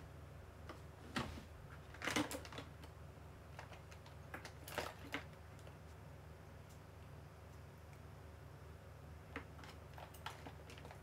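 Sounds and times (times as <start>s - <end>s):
handling noise clicks and rustles: 0.7s - 6.0s, 9.3s - 11.0s.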